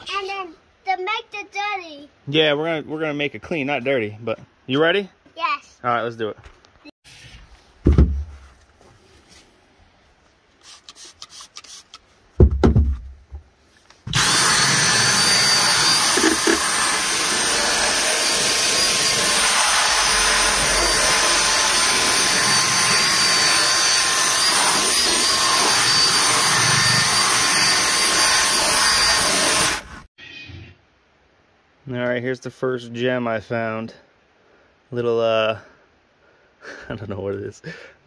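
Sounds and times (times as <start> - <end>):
thump: 7.8 - 8.4, 12.4 - 13.4
spray bottle squirts: 10.6 - 12.0
cordless drill running: 14.1 - 30.1.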